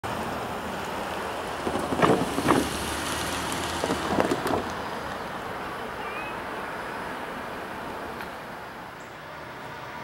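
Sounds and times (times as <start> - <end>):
wind buffeting microphone: 1.6 - 2.9, 3.5 - 4.8.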